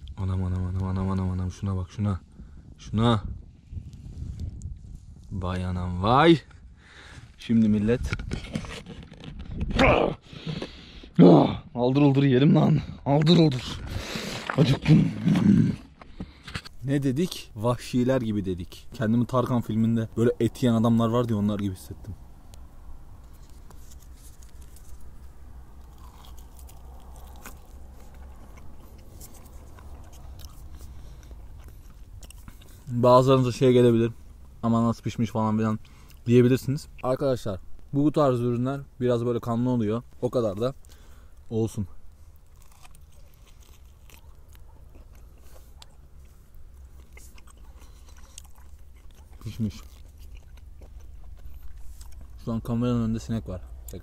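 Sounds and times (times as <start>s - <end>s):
steady low rumble: 14.8s - 54.0s
man biting and chewing meat: 22.4s - 33.1s, 40.7s - 54.0s.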